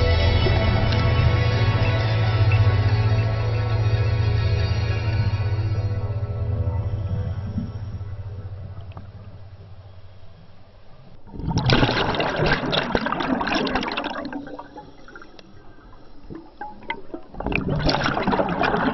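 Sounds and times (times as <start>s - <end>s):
low steady hum: 0.0s - 18.9s
underwater air bubbles gurgling: 11.0s - 18.9s.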